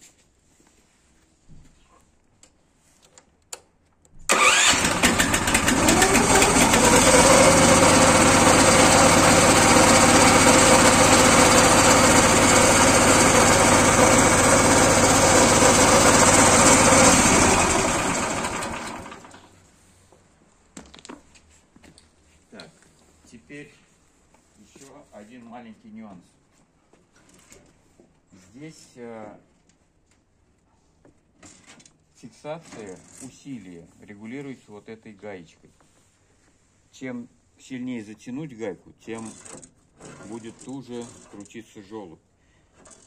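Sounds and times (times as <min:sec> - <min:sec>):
electric starter cranking: 0:04.3 - 0:19.4
single-cylinder engine running: 0:04.3 - 0:19.4.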